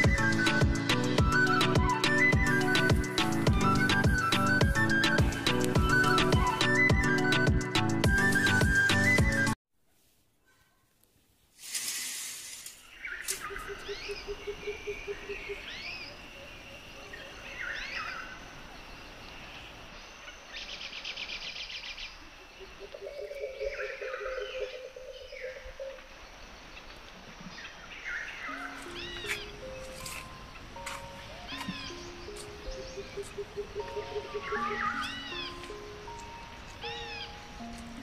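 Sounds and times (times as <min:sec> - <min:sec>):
steady background hiss: 0:09.8 - 0:38.0
small birds chirping: 0:12.8 - 0:38.0.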